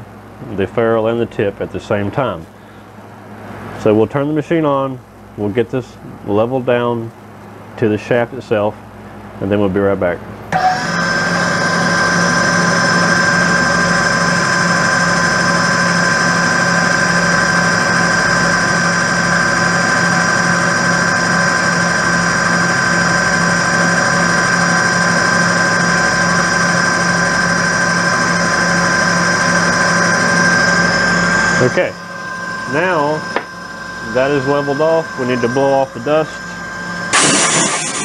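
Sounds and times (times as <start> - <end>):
lathe motor humming and whining: 10.5 - 38.0.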